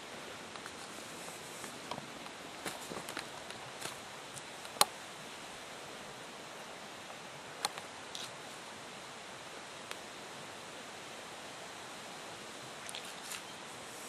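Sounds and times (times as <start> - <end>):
footsteps on trail: 0.6 - 4.5.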